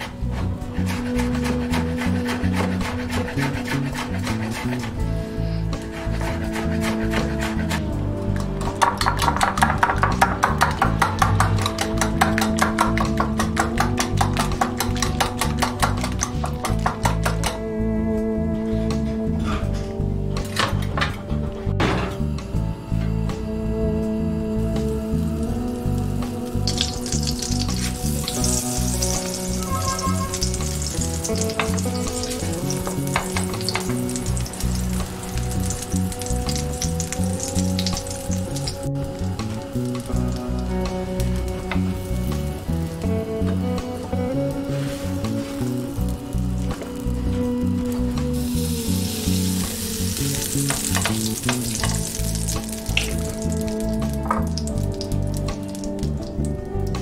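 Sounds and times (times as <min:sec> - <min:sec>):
background music: 0:00.0 - 0:57.0
food sizzling in frying pan: 0:26.6 - 0:40.7, 0:47.9 - 0:55.9.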